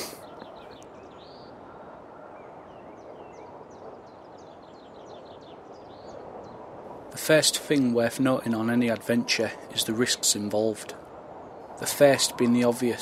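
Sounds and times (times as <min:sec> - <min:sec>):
faint bird chirps: 0:00.0 - 0:06.7
steady low hiss: 0:00.0 - 0:13.0.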